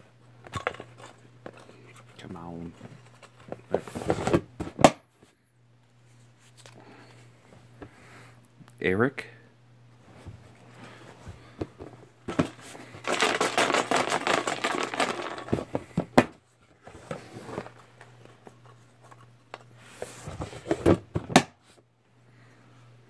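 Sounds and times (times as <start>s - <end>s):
paper rustling: 12.5s - 15.7s.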